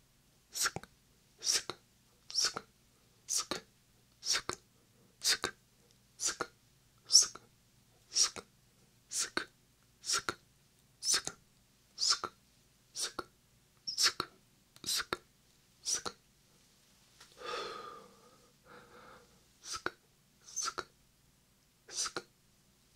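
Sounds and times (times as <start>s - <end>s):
whispered sk mouth sounds: 0.5s - 2.7s, 3.3s - 4.6s, 5.2s - 5.6s, 6.2s - 7.5s, 8.1s - 8.5s, 9.1s - 10.4s, 11.0s - 11.4s, 12.0s - 12.4s, 13.0s - 13.3s, 13.9s - 16.2s, 19.6s - 21.0s, 21.9s - 22.3s
breathy whisper: 9.1s - 10.4s, 13.0s - 13.3s, 15.8s - 16.2s, 17.4s - 20.9s, 21.9s - 22.3s.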